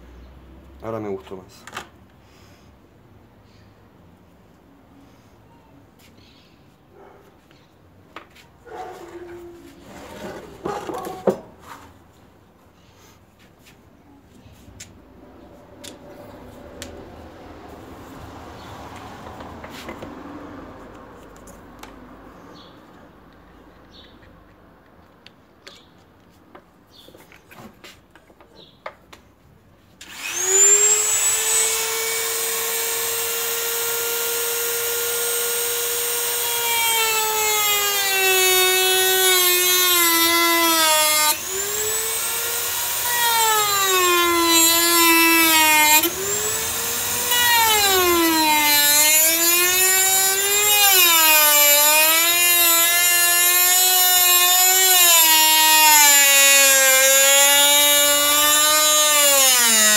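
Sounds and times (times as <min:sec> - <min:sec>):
rotary tool cutting plastic: 0:30.0 - 0:59.9.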